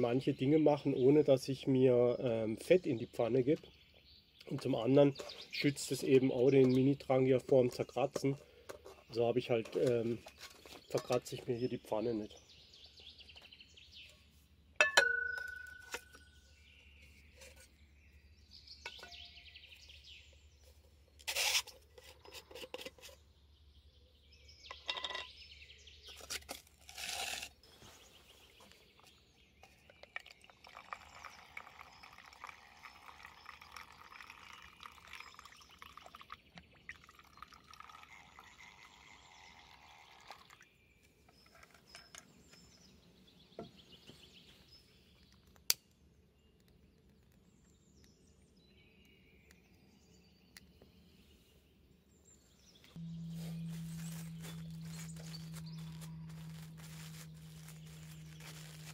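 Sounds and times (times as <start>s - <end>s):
metal cookware clinking: 14.8s - 16.0s, 24.7s - 25.3s.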